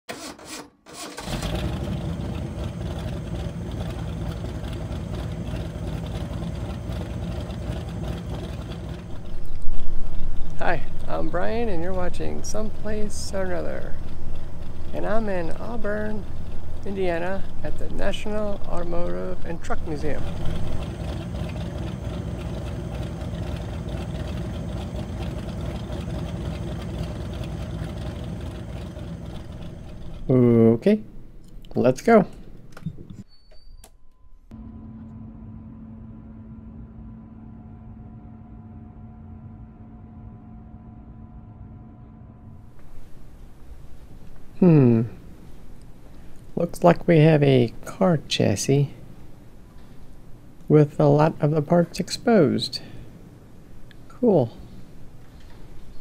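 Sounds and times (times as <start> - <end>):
car engine idling: 1.1 - 31.9, 34.5 - 47.7
low rumbling noise: 1.2 - 33.2, 34.3 - 56.0
faint hum: 1.7 - 56.0.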